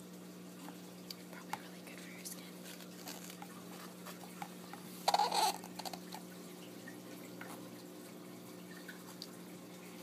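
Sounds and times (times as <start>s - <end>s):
faint paper ticks: 0.6s - 4.9s
book page turning: 2.6s - 4.2s.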